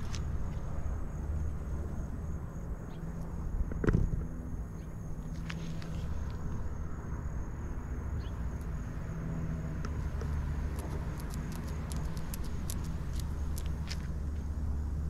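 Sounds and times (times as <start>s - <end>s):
low motor hum: 0.0s - 15.0s
sharp clicks: 10.7s - 14.1s.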